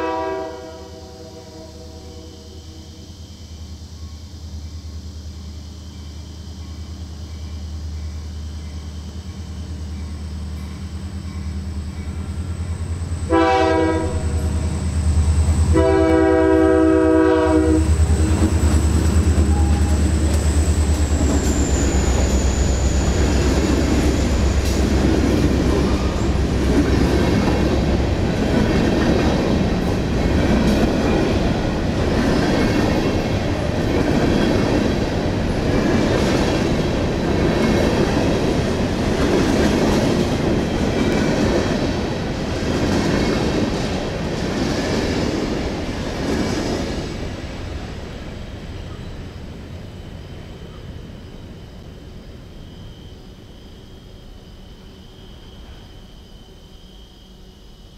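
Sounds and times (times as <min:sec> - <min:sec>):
train horn blasts: 0:00.0 - 0:03.1, 0:13.2 - 0:14.8, 0:15.7 - 0:18.6, 0:19.3 - 0:20.3
train cars rumbling and clattering: 0:02.6 - 0:52.0
locomotive rumble: 0:04.7 - 0:50.8.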